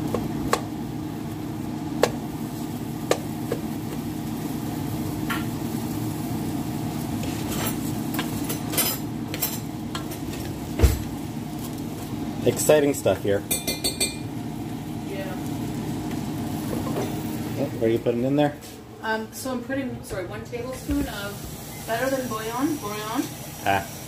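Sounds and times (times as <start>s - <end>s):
light sizzle: 0.0s - 24.0s.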